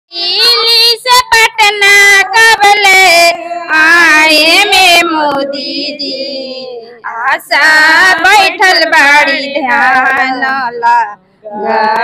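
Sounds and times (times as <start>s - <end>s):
women chanting a slogan: 0.2s - 12.0s.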